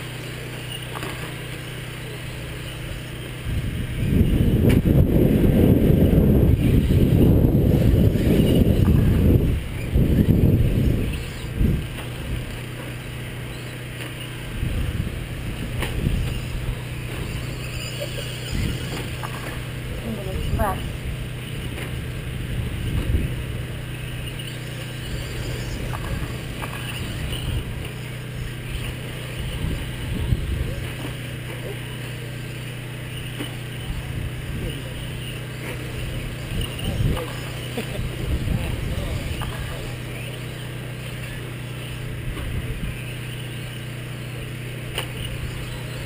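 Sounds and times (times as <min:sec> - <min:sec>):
high whine: 0:00.0 - 0:46.0
toy cars mechanical hum: 0:00.0 - 0:46.0.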